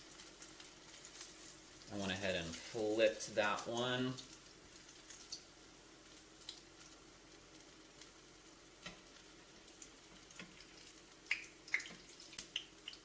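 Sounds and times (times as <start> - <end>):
food sizzling in oil: 0.0 - 13.0
oil crackling and popping: 0.0 - 13.0.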